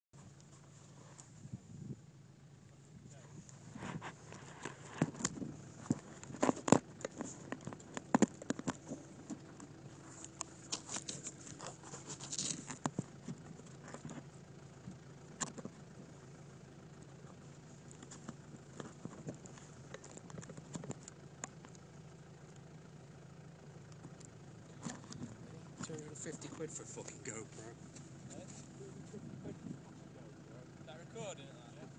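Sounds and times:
engine idling hum: 0.2 - 31.9
camera rubbing against jacket: 3.4 - 14.3.

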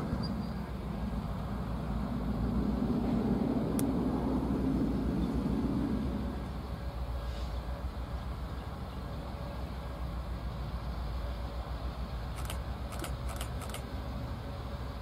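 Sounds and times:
vehicle rumble: 0.0 - 15.0
light clicks: 12.4 - 13.8.

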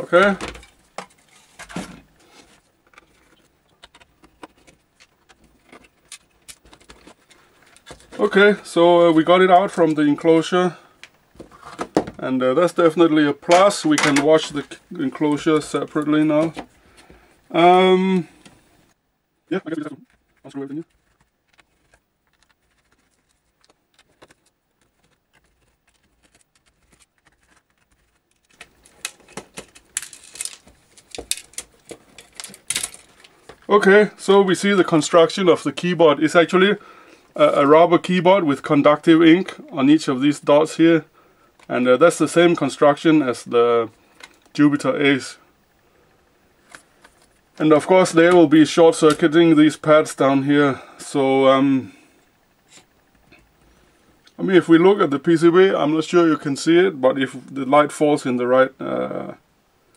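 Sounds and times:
plastic keyboard clicking and clatter: 20.8 - 33.3.

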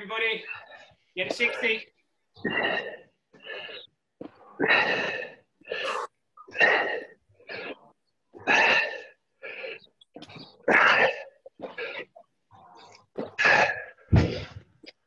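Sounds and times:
person breathing hard: 2.4 - 6.2.

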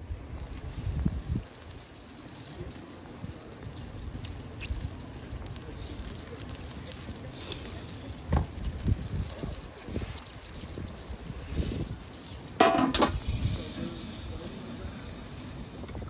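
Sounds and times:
oysters sizzling on a grill: 0.0 - 16.0
wind rumbling on microphone: 0.0 - 16.0.

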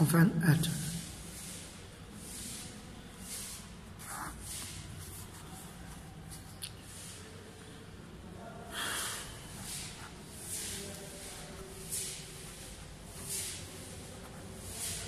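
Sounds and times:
pen scratching on paper: 4.0 - 5.7.

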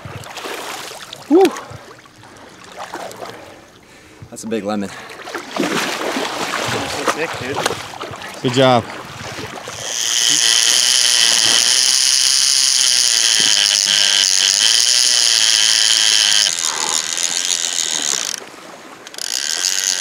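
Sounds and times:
fishing reel clicker screaming: 9.7 - 20.0.

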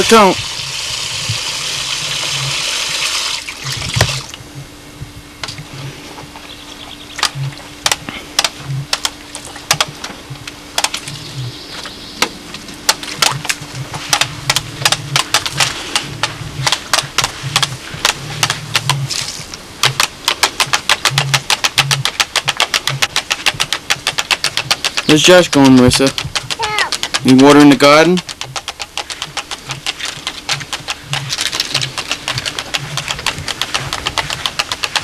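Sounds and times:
faint low hum: 0.0 - 35.0
plastic toy wheelbarrow clicking: 22.1 - 35.0.

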